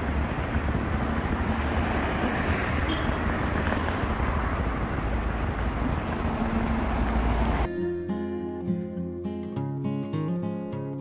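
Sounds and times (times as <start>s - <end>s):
street traffic rumble: 0.0s - 7.7s.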